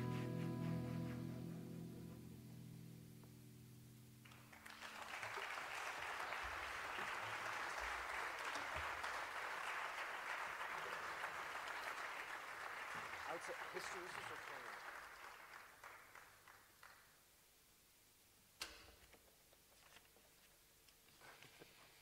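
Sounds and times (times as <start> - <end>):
audience applause: 4.2 - 17.2.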